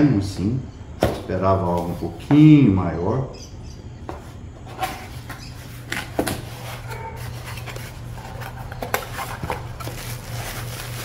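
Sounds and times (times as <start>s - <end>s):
cardboard box being opened: 5.9s - 11.0s.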